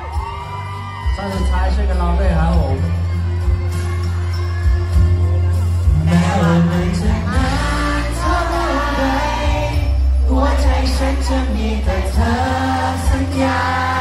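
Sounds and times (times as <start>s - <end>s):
pop backing track with bass: 0.0s - 14.0s
man singing into a microphone: 5.9s - 14.0s.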